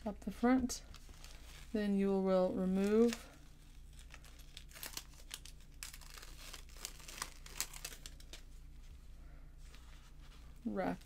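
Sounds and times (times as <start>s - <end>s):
paper liner crinkling and peeling: 0.9s - 8.9s.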